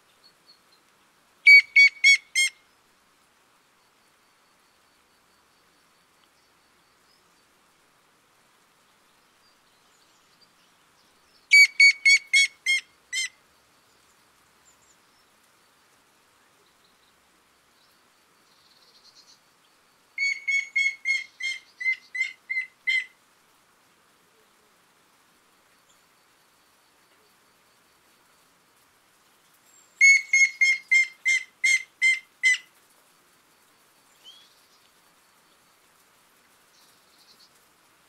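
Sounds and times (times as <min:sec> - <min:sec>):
woodpecker whistled notes: 0:01.5 - 0:02.5, 0:11.5 - 0:12.8, 0:20.2 - 0:23.0, 0:30.0 - 0:32.6.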